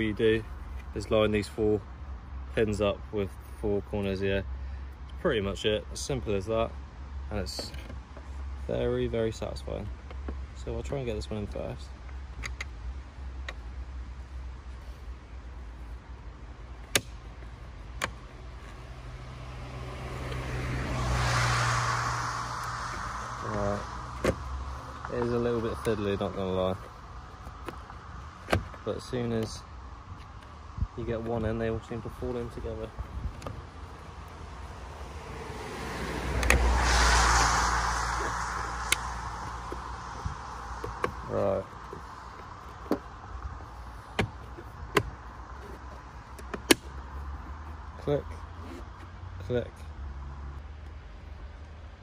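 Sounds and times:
low rumble of traffic: 0.0s - 52.0s
passing vehicle hum: 16.0s - 51.7s
car passing on wet road: 19.1s - 26.4s, 33.7s - 42.6s.

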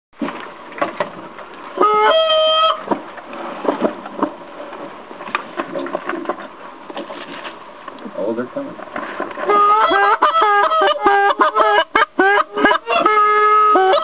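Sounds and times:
goose call honking: 1.8s - 2.9s, 9.4s - 14.0s.

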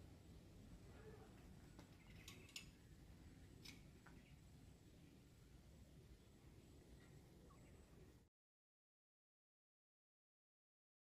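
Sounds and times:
faint low background rumble: 0.0s - 8.3s.

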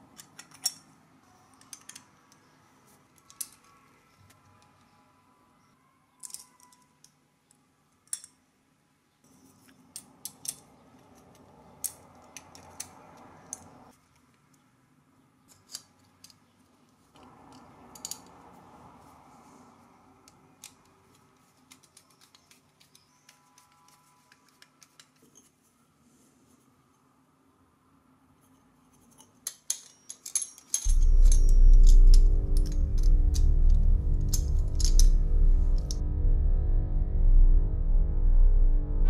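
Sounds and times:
small metal parts clinking: 0.0s - 2.6s, 3.2s - 3.8s, 6.2s - 7.2s, 9.3s - 13.7s, 15.5s - 16.5s, 17.2s - 18.4s, 20.6s - 25.6s, 28.5s - 36.0s
soft scraping hiss: 20.9s - 27.1s.

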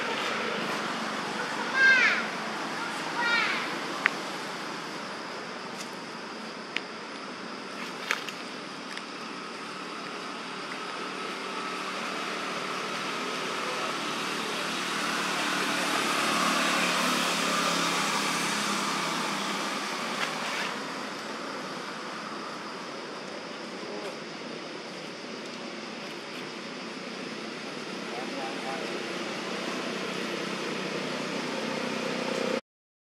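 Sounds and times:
vehicle passing by: 13.0s - 20.9s.

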